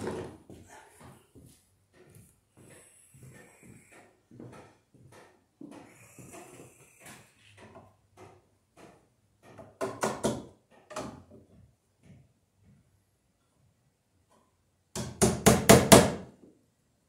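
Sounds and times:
footsteps: 0.0 - 9.0.

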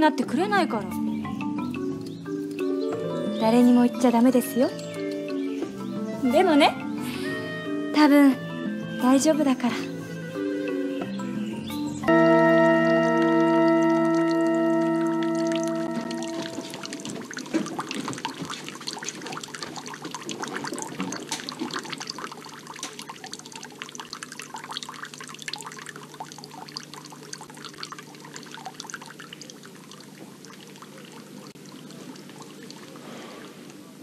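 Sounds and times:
water splashing into stone basin: 12.7 - 33.6.

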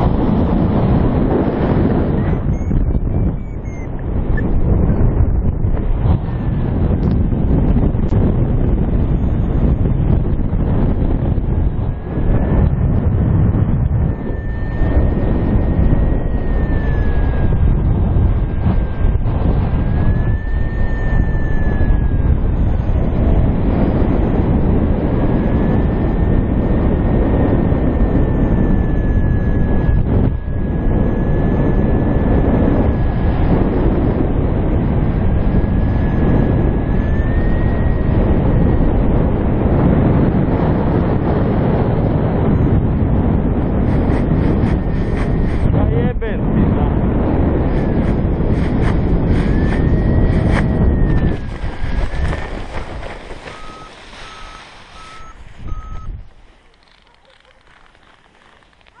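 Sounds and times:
wind buffeting microphone: 0.0 - 59.0
variometer beeps: 2.0 - 5.2, 49.4 - 56.2
thin steady whistle: 2.2 - 5.1, 14.1 - 17.6, 19.8 - 22.6, 47.7 - 56.2.

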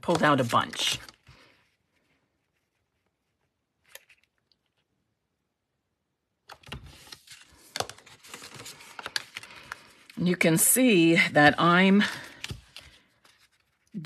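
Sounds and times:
paper rustling: 0.0 - 4.9, 6.5 - 10.2, 11.8 - 14.0.

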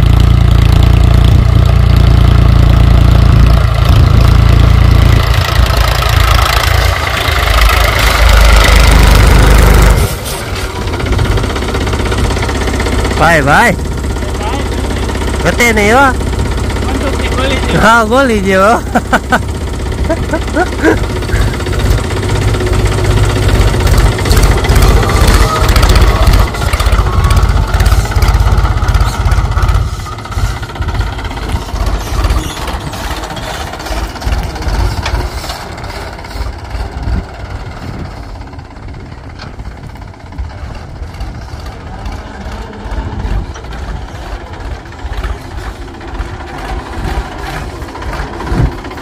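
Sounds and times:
tractor diesel engine running: 0.0 - 49.0.

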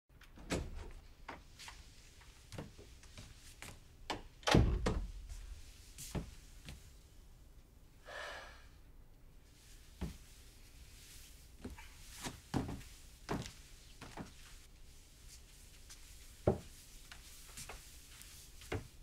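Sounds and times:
door thudding shut: 4.4 - 5.2
footsteps on hard floor: 11.6 - 14.5, 15.3 - 19.0.

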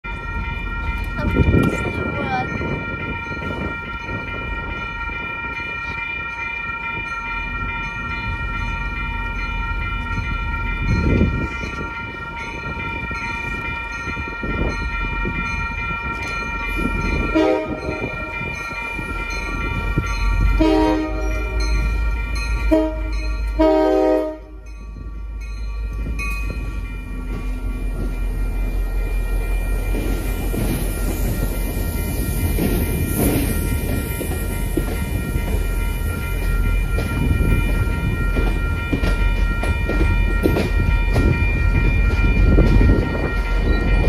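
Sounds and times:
low locomotive engine rumble: 0.0 - 44.0
railroad crossing bell ringing: 0.0 - 44.0
locomotive horn blasts: 17.3 - 18.4, 20.6 - 21.7, 22.7 - 24.6.

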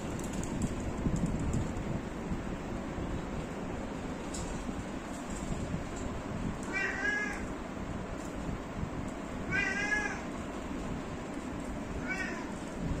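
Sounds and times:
cat meowing: 6.7 - 7.5, 9.5 - 10.3, 12.0 - 12.6.

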